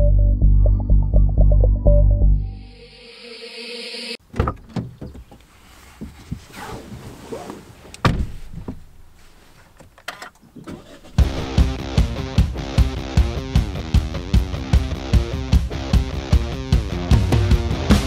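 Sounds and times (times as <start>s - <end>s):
knocks and rustling in car seat: 4.3s - 10.7s
car door shutting: 7.9s - 9.0s.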